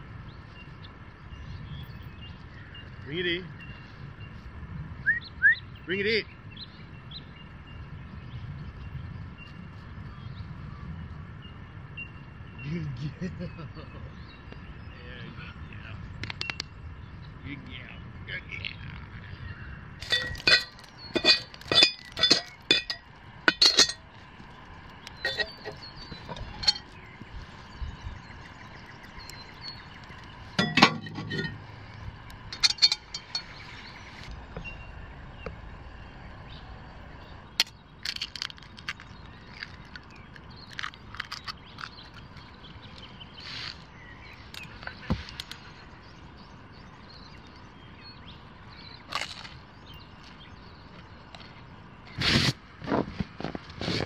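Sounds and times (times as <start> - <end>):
ringing clinks of hard objects: 20.0 - 24.1, 25.2 - 27.0, 30.6 - 31.7, 32.5 - 33.6
heavier clunk: 30.6 - 31.7.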